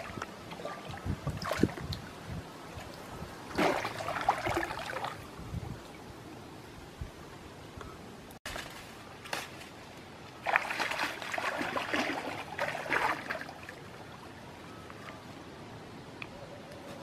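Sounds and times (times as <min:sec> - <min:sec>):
leafy branches rustling: 0:08.5 - 0:10.5.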